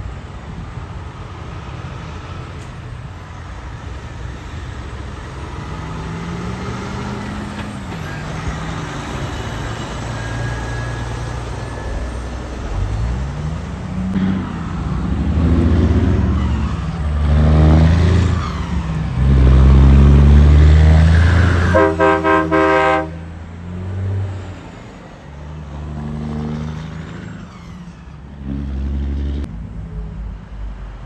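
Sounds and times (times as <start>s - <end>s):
diesel trucks passing: 0.0s - 31.0s
truck air horn blasts: 21.1s - 23.4s.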